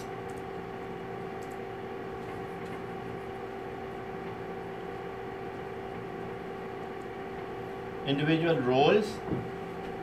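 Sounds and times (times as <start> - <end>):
room hum: 0.0 - 10.0.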